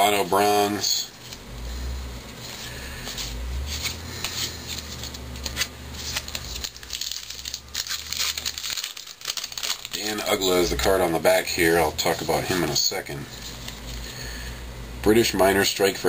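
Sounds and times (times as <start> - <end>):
cards flipped and shuffled: 2.2 - 11.0.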